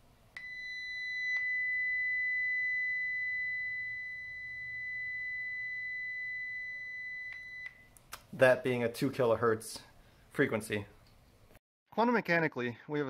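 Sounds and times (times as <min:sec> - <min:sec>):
steady high-pitched tone: 0:00.4 - 0:07.8.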